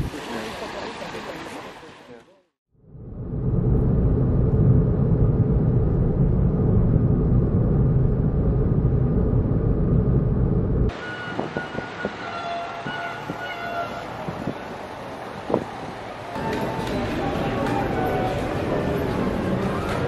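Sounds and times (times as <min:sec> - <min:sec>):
town ambience: 0:00.0 - 0:20.0
car engine and tyre rumble: 0:02.8 - 0:20.0.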